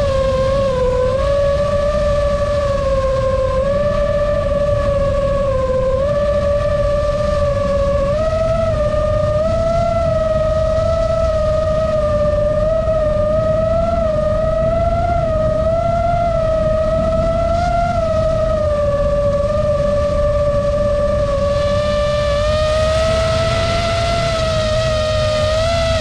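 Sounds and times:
drone motors whining: 0.0s - 26.0s
low rushing noise: 0.0s - 26.0s.

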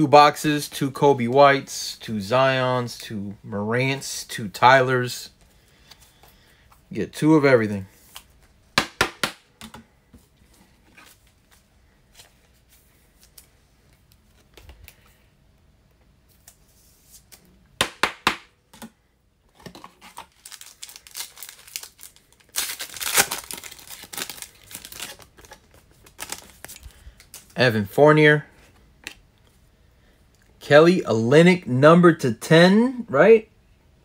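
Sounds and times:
foil wrapper crinkling: 19.7s - 27.6s.

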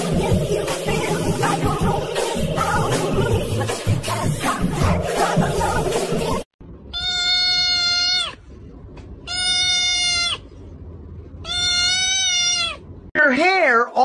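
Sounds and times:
kitten meowing: 6.9s - 8.4s, 9.3s - 10.4s, 11.4s - 12.8s.

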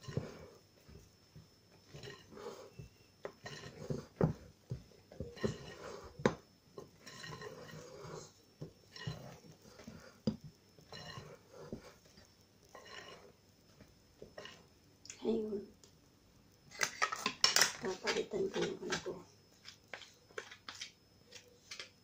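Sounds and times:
batter stirring and slopping: 0.0s - 15.2s.

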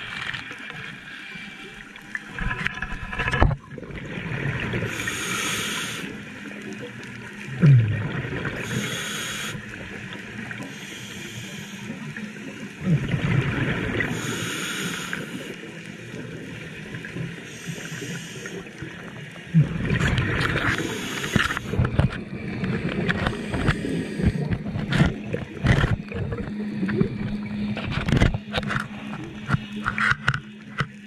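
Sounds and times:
exhaled bubbles gurgling: 1.6s - 30.3s
scuba regulator breathing: 4.9s - 6.2s, 8.6s - 9.8s, 10.6s - 12.2s, 14.1s - 15.7s, 17.4s - 18.8s, 20.5s - 22.0s, 23.1s - 25.0s.

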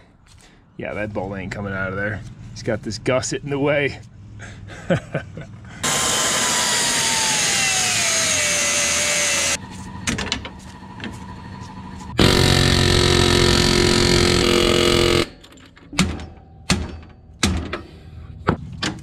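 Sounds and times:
grinder cutting steel: 5.8s - 9.6s, 12.2s - 15.3s.

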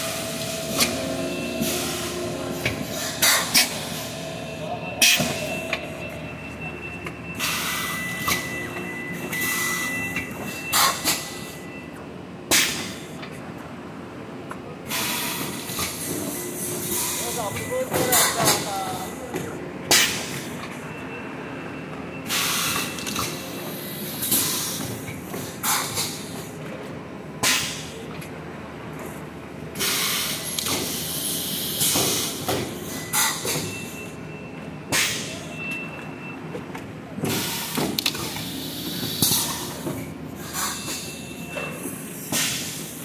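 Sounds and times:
packing machine hum: 0.0s - 11.7s, 36.7s - 43.0s.

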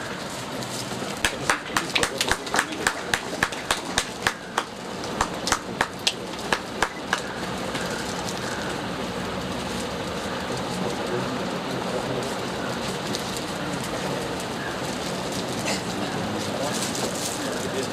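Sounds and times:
round of applause: 1.1s - 8.1s
hand clapping: 1.2s - 8.0s.

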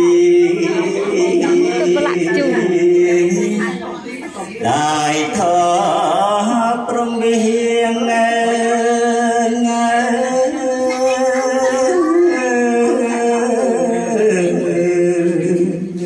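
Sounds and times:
man chanting unaccompanied: 0.0s - 16.0s.

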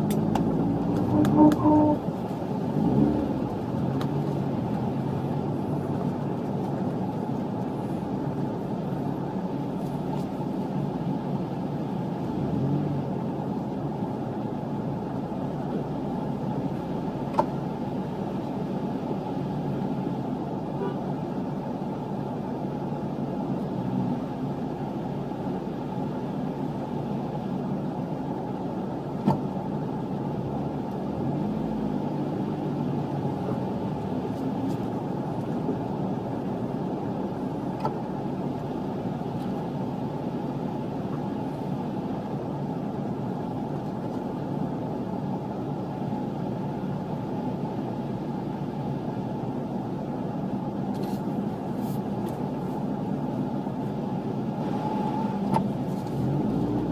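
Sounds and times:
car engine idling: 0.0s - 56.9s.

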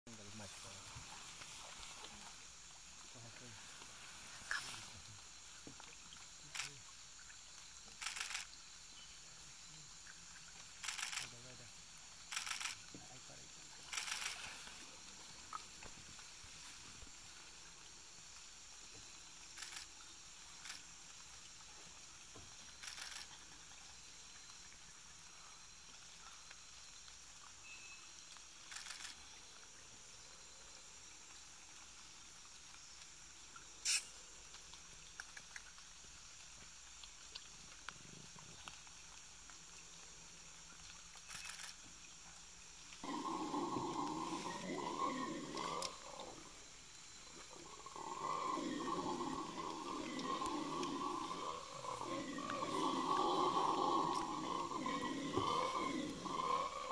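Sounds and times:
insects droning: 0.1s - 56.9s
howler monkey roaring: 43.0s - 46.5s, 47.5s - 56.9s.

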